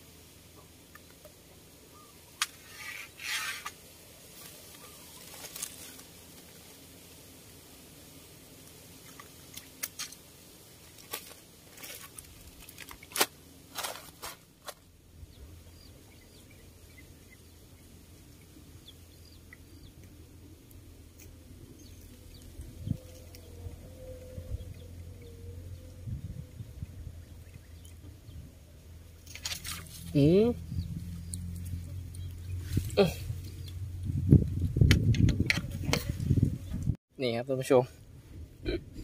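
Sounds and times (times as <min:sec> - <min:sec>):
faint bird chirps: 0:01.9 - 0:03.2, 0:04.8 - 0:05.4.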